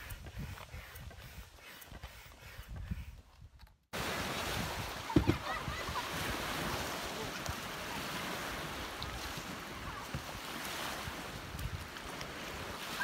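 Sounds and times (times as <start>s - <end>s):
wind buffeting microphone: 0.0s - 13.0s
waves washing onto beach: 4.0s - 13.0s.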